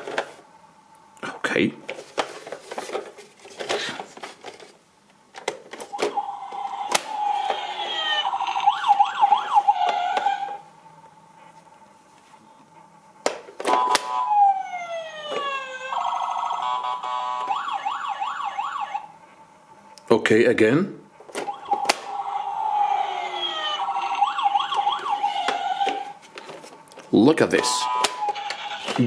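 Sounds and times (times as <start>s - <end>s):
toy police siren warbling: 6.0s - 10.6s, 13.7s - 19.1s, 21.4s - 26.2s, 27.6s - 29.0s.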